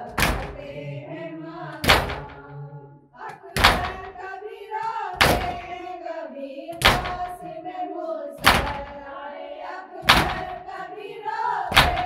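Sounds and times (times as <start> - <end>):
voices chanting a lament: 0.0 - 12.0
hands slapping chests: 0.1 - 0.7, 1.8 - 2.4, 3.3 - 4.1, 4.8 - 5.7, 6.8 - 7.3, 8.4 - 8.9, 10.1 - 10.5, 11.7 - 12.0.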